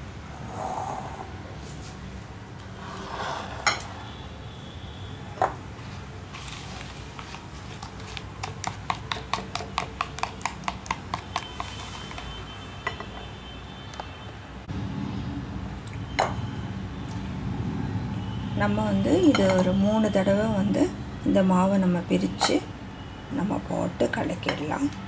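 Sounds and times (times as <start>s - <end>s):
whisk tapping bowl: 7.1s - 12.2s.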